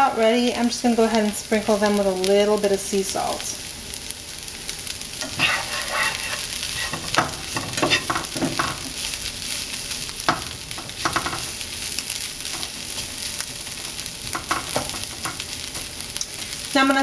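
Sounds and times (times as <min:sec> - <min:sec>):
onions sizzling in a frying pan: 0:00.0 - 0:17.0
spatula scraping a pan: 0:05.2 - 0:09.6.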